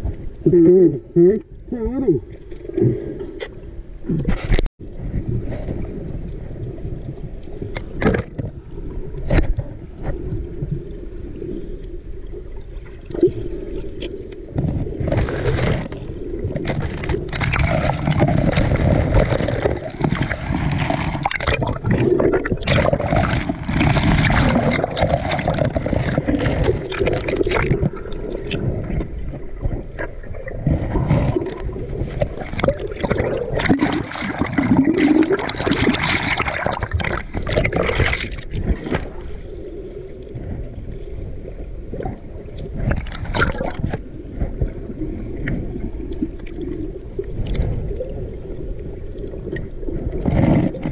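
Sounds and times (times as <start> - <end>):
underwater bubbles rushing: 2.2 - 50.9
water sloshing and splashing: 4.1 - 50.9.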